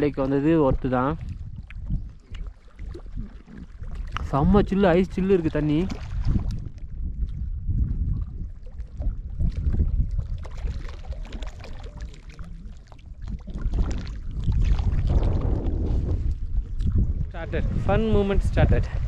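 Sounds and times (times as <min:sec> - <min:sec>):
waves lapping on stony shore: 0:00.0 - 0:06.7, 0:09.3 - 0:16.0
wind rumbling on microphone: 0:00.0 - 0:19.0.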